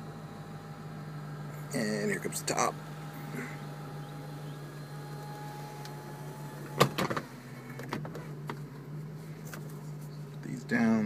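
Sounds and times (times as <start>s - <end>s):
convertible top motor whine: 0.0s - 11.0s
sharp clunk: 6.7s - 8.2s.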